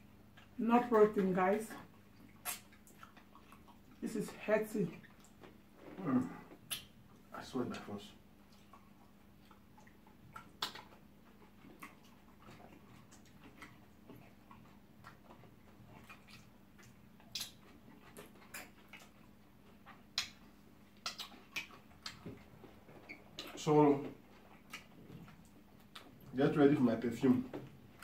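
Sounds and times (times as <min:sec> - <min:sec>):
faint steady hum: 0:00.0 - 0:28.0
wet mouth smacks and clicks: 0:02.2 - 0:03.8, 0:06.6 - 0:07.0, 0:09.4 - 0:11.0, 0:16.0 - 0:22.4, 0:24.4 - 0:26.3.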